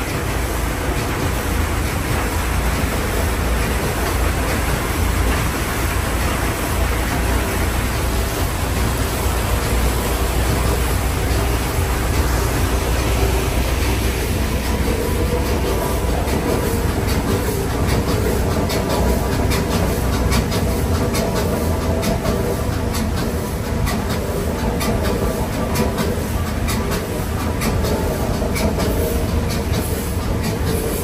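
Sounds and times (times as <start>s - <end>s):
paddle wheel churning water: 0.0s - 31.0s.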